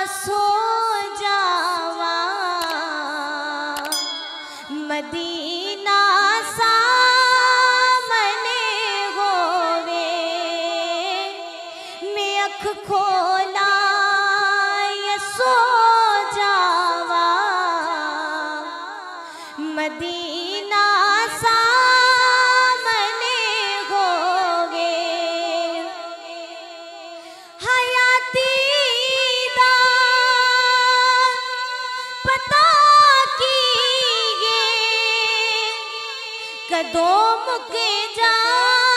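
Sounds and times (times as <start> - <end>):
woman singing devotional song: 0.0 - 38.9.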